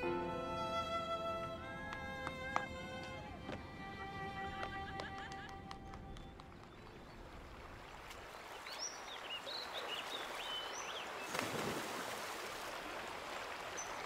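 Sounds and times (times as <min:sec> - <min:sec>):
creek running over rocks: 0:02.0 - 0:14.0
birds chirping: 0:03.8 - 0:11.4
water splash: 0:11.2 - 0:13.7.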